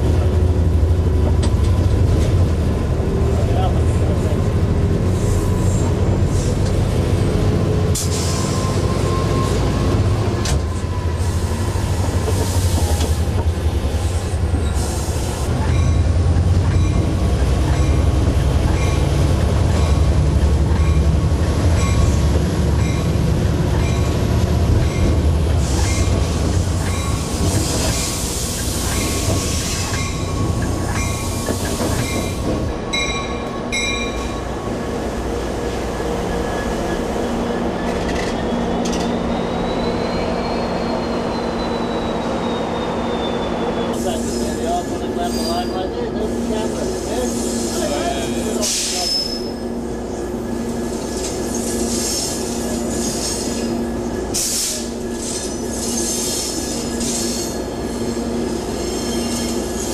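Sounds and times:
locomotive rumble: 0.0 - 59.9
wheel squeal: 37.7 - 44.5, 48.6 - 49.6, 54.4 - 59.9.

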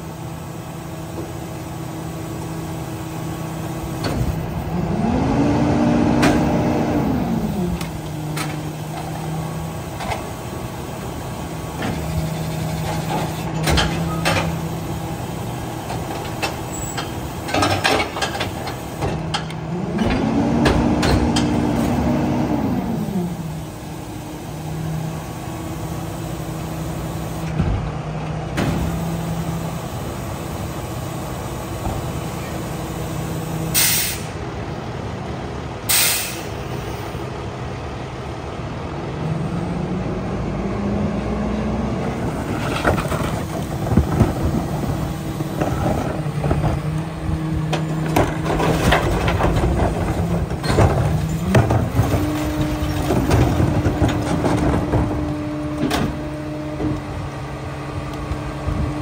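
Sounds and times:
air hiss bursts: 33.8 - 34.4, 35.9 - 36.5.

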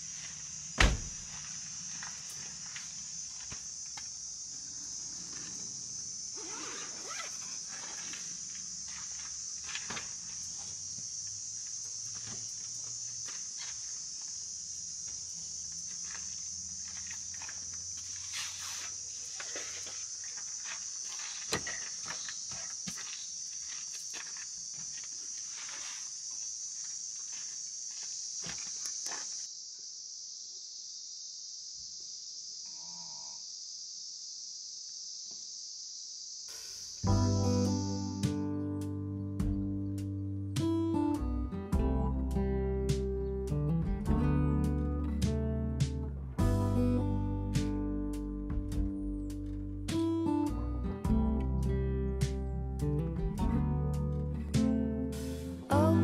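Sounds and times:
insect drone: 0.0 - 43.7, 44.5 - 56.0
footsteps on gravel: 15.8 - 29.5.

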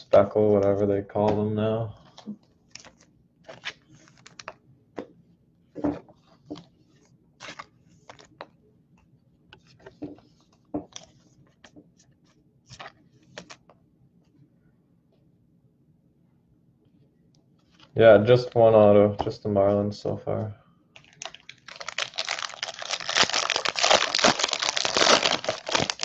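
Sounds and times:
foil wrapper crinkling: 21.0 - 26.0.

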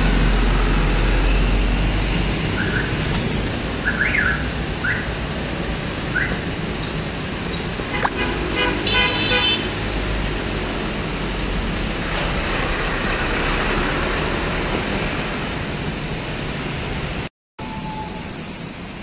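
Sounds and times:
passing road traffic: 0.0 - 19.0
vehicle horn toot: 8.0 - 9.7.

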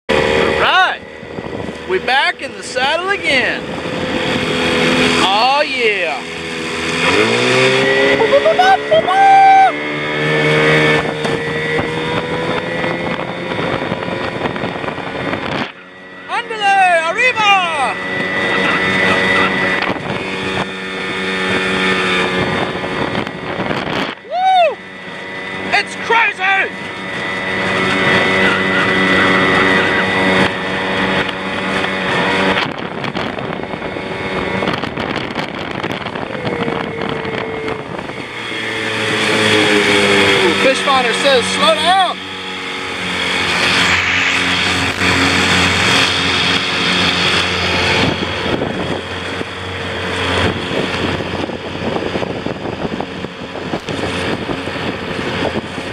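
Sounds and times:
outboard motor running: 0.1 - 55.9
wind rushing: 0.2 - 26.0, 41.3 - 55.9
water rushing past: 34.6 - 51.4.

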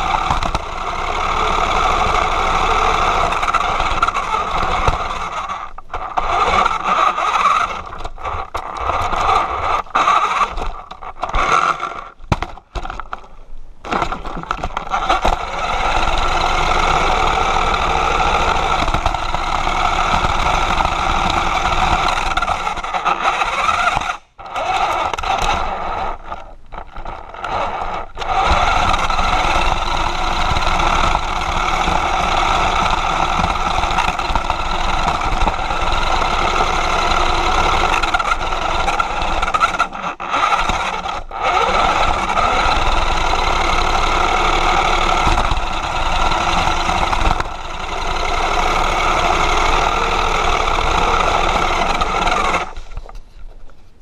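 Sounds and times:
toy car motor and gears: 0.0 - 53.3.

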